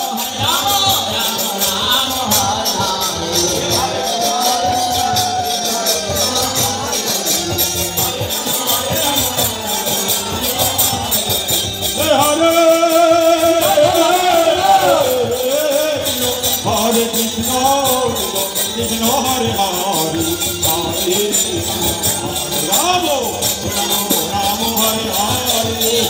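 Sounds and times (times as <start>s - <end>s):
group chanting: 0.0s - 17.0s
hand cymbals jingling: 0.0s - 26.0s
hand drums: 0.0s - 26.0s.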